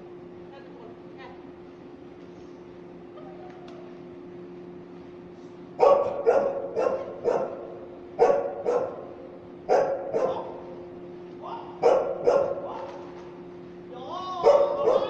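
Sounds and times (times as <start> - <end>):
dog barking: 5.8 - 10.7, 11.8 - 13.0, 14.4 - 15.0.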